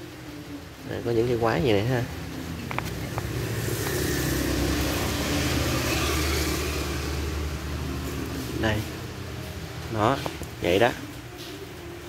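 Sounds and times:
vehicle engine running: 1.6s - 10.8s.

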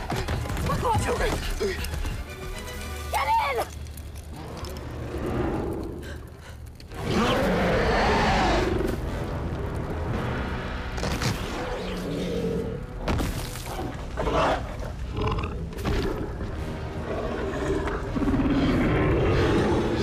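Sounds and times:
dinosaur growls: 4.3s - 6.3s, 6.9s - 8.9s, 14.2s - 20.0s.

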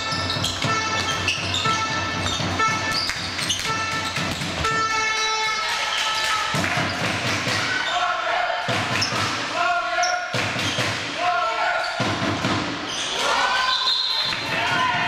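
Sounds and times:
ball bouncing on court: 0.0s - 5.6s
horns blowing held toots: 0.0s - 6.1s.

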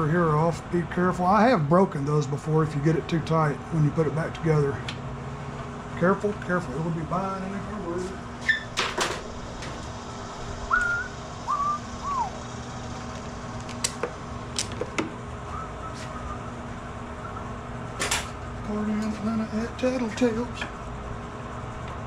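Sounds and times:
steady low hum: 0.0s - 22.0s
person whistling: 10.7s - 12.4s, 15.5s - 16.5s, 17.2s - 17.5s.

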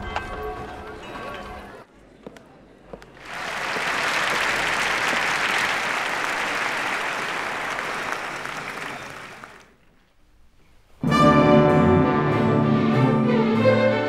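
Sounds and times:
audience applauding: 3.2s - 9.8s.

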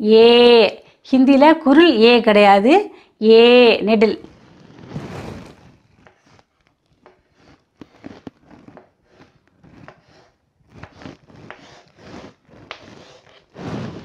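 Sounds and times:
chalk scraping on a blackboard: 4.3s - 14.0s.

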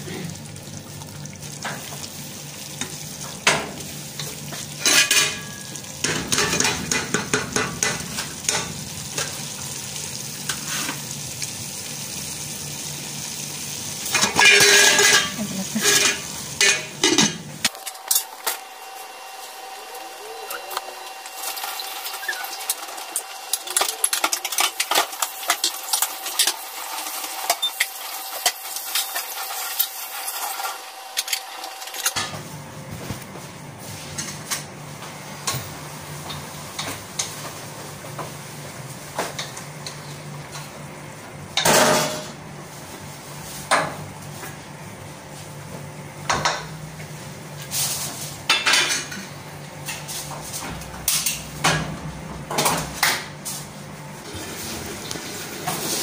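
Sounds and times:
utensils clinking and scraping pans: 2.7s - 9.4s, 14.0s - 32.4s, 41.6s - 42.4s, 47.6s - 51.9s.

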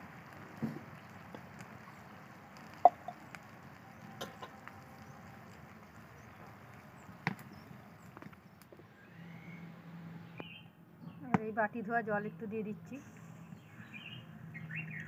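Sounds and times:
low steady hiss: 0.0s - 10.2s.

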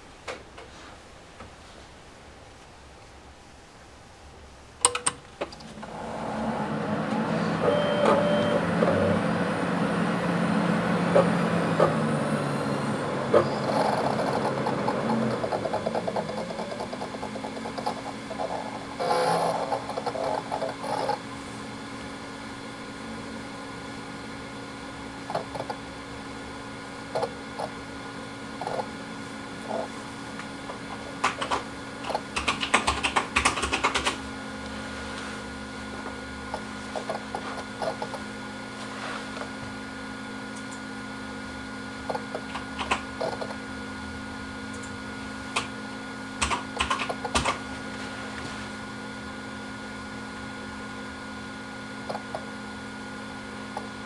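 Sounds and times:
hard drives humming: 0.0s - 54.0s
hard drive heads clicking: 30.7s - 34.2s, 42.0s - 43.6s, 46.4s - 47.6s.

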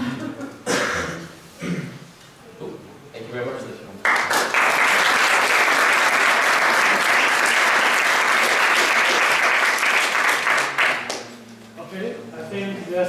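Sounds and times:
audience applauding: 4.0s - 11.3s.

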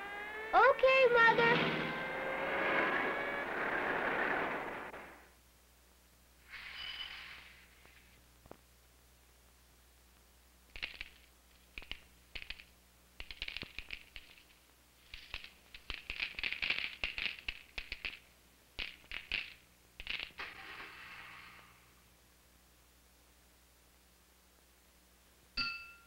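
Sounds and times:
cereal crackling and popping: 10.7s - 20.4s.

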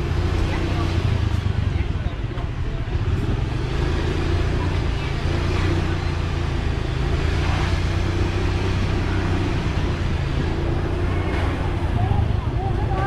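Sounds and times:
road and wind noise: 0.0s - 13.0s.

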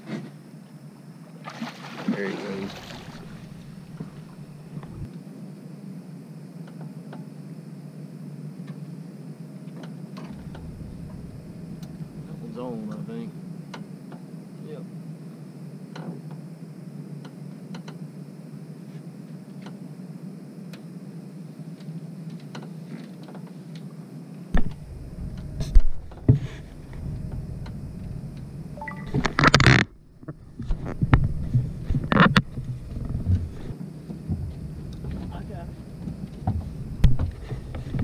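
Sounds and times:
steady low hum: 0.0s - 38.0s
faint ticks: 17.2s - 18.0s, 20.7s - 20.9s.

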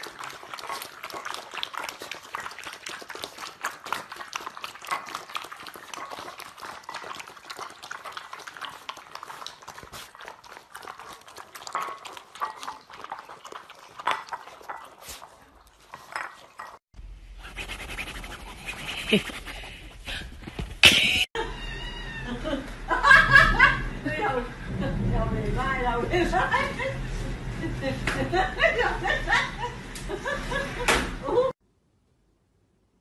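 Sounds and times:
puppies lapping and chewing: 0.0s - 20.8s.

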